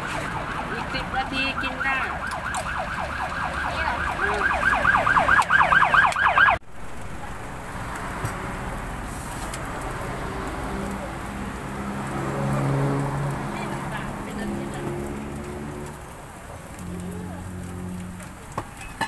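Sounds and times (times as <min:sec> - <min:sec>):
siren yelping: 0:00.0 - 0:06.6
faint voices: 0:16.4 - 0:18.6.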